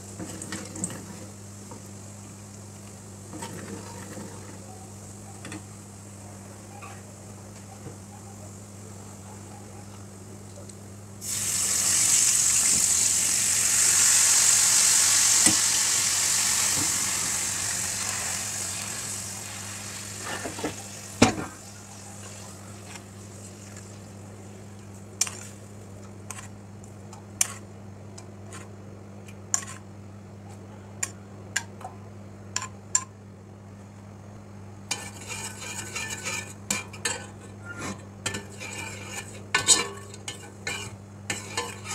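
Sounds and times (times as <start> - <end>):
vinegar sizzling in hot oil: 11.2 - 26.5, 34.9 - 37.2, 38.3 - 41.9
spoon scraping a steel pot: 29.5 - 29.8, 34.9 - 41.9
metal spoon clinking on pans: 34.9 - 41.9.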